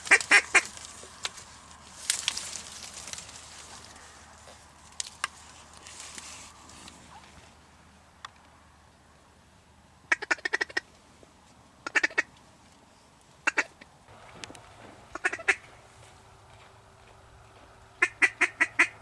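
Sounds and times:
corn leaves rustling: 0:00.0 - 0:07.6
duck call quacks: 0:00.1 - 0:00.7, 0:11.9 - 0:12.3, 0:15.1 - 0:15.6, 0:18.0 - 0:19.0.

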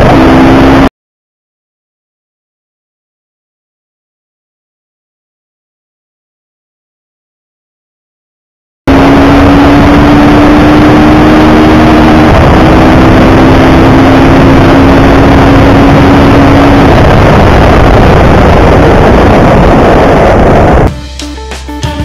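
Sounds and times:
wind noise on microphone: 0:08.9 - 0:20.9
motorcycle engine humming: 0:08.9 - 0:22.0.

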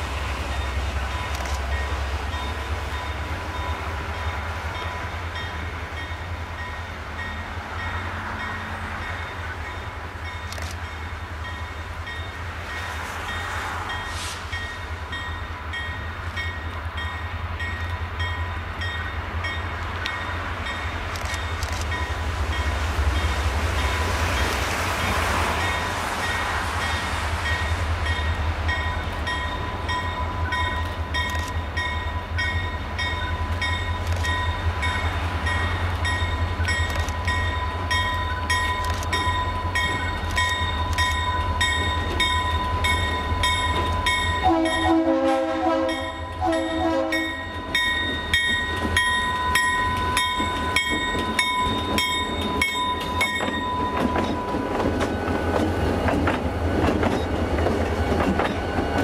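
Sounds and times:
locomotive engines rumbling: 0:00.0 - 0:59.0
locomotive horn blasts: 0:44.4 - 0:47.6.

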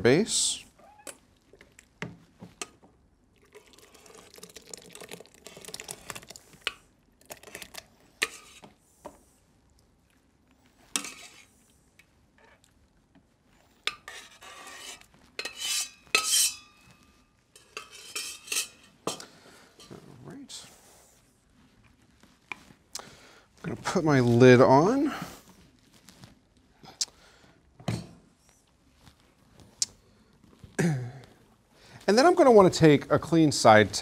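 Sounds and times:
metal spoon scraping a saucepan: 0:08.2 - 0:08.6, 0:10.9 - 0:11.5, 0:13.9 - 0:19.2.

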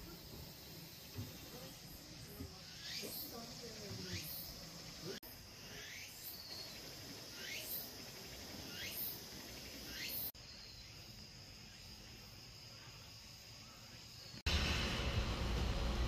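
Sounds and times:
insects droning high-pitched: 0:00.0 - 0:14.5
rising insect call: 0:00.0 - 0:14.5
low rumbling noise: 0:14.5 - 0:16.0.

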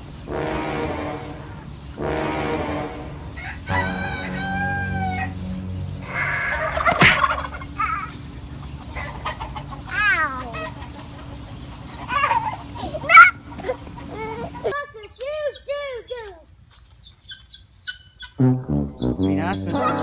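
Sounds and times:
roosters crowing: 0:00.3 - 0:14.7
chickens clucking: 0:03.3 - 0:18.4.

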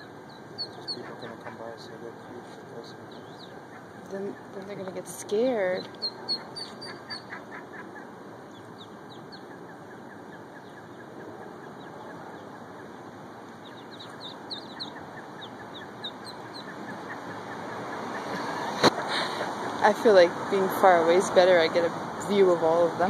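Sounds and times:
ducklings peeping: 0:00.0 - 0:19.8.

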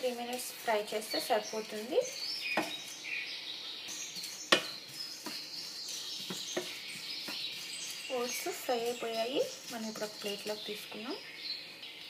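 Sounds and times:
spatula scraping oats in pan: 0:00.0 - 0:03.1, 0:03.9 - 0:11.1
spatula tapping pan: 0:02.6 - 0:02.8, 0:04.1 - 0:10.6.

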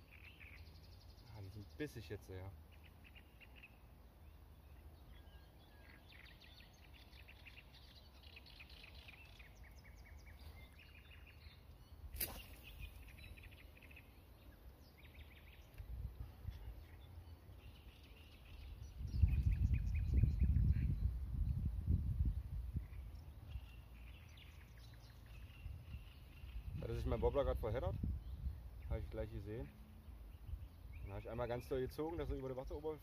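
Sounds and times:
small birds chirping: 0:00.0 - 0:33.0
sharp click: 0:12.1 - 0:12.9
wind rumble on microphone: 0:15.6 - 0:17.1, 0:18.4 - 0:24.6, 0:25.2 - 0:32.7.

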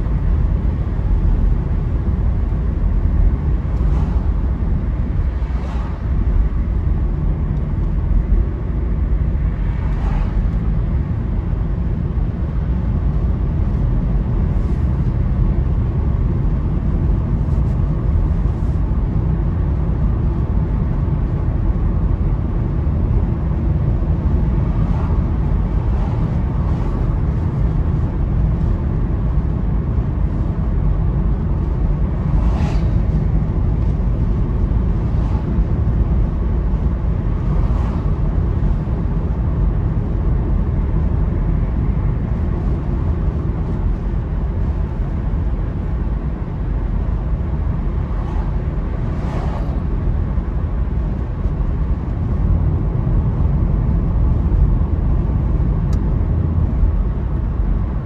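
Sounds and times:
road and engine rumble in car: 0:00.0 - 0:58.0
bus passing whoosh: 0:03.4 - 0:07.4, 0:08.8 - 0:12.7, 0:24.2 - 0:54.0.

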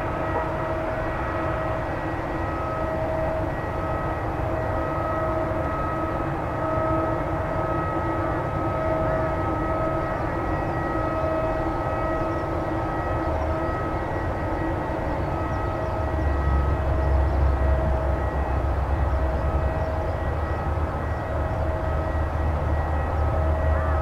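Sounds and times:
distant jet engine rumble: 0:00.0 - 0:24.0.

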